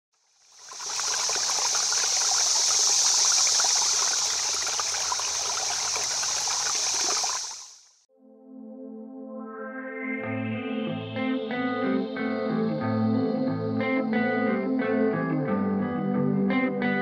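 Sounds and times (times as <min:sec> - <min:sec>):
water trickling: 0:00.2 - 0:08.0
guitar playing: 0:10.2 - 0:17.0.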